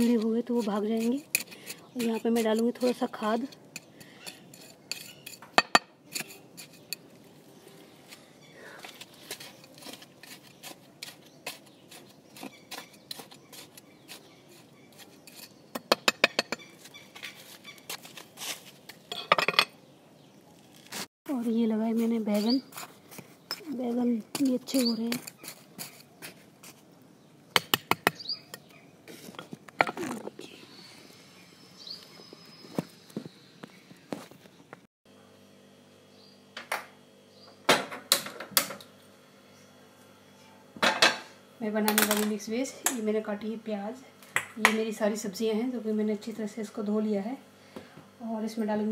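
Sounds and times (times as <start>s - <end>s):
hand hoe scraping soil: 0.0s - 5.4s, 8.9s - 15.9s, 16.7s - 19.1s, 21.8s - 26.9s.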